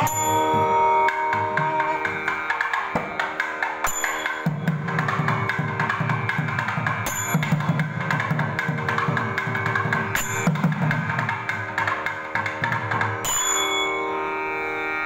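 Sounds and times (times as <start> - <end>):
held wind instrument note: 0.0 - 3.2
drum playing fast rhythm: 0.0 - 13.1.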